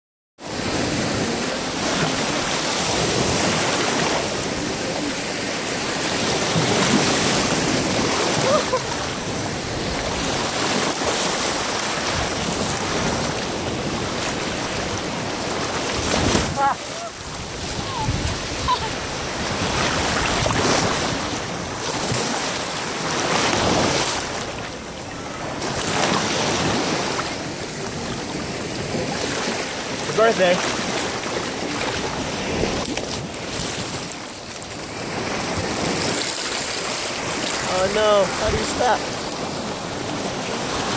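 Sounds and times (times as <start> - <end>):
shallow surf splashing: 0.4 - 40.9
small waves breaking: 0.4 - 40.9
wind noise on microphone: 6.2 - 22.4.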